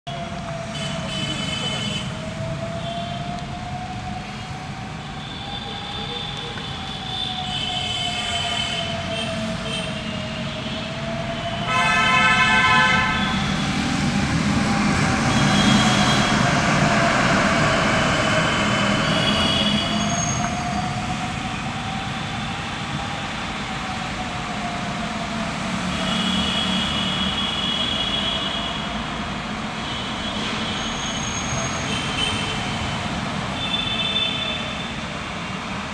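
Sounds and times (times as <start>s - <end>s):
low rumble of traffic: 0.1s - 35.9s
car horns honking: 11.7s - 13.6s.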